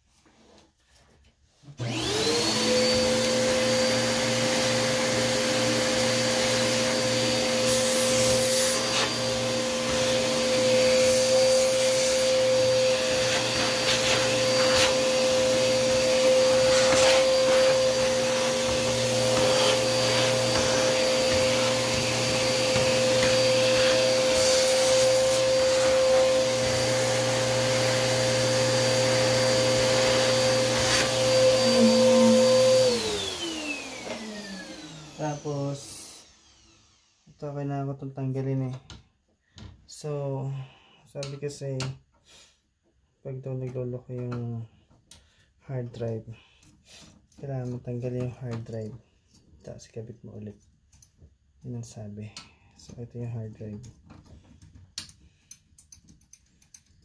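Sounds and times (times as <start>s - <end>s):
vacuum cleaner motor whine: 1.8s - 37.3s.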